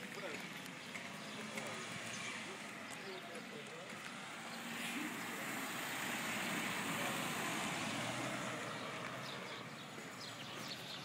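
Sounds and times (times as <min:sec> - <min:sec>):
car driving past: 0:04.0 - 0:11.0.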